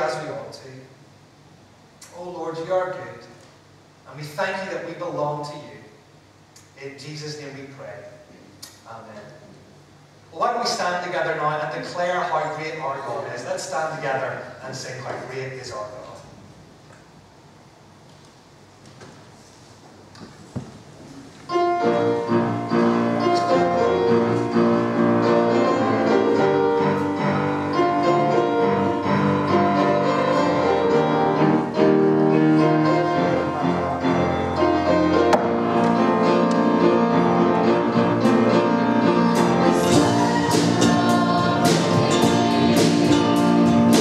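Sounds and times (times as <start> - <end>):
piano: 20.1 - 44.0
church band playing: 21.5 - 44.0.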